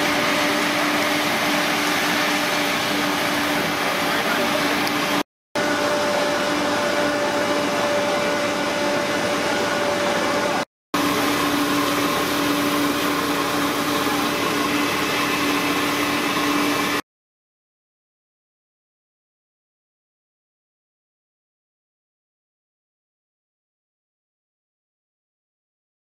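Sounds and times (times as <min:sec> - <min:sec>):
fire engine pump humming: 0:00.0 - 0:17.0.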